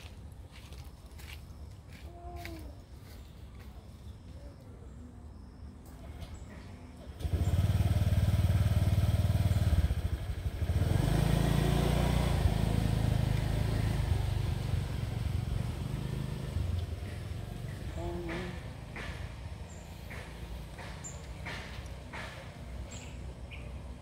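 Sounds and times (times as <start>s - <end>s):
vehicle engine running: 7.0s - 24.0s.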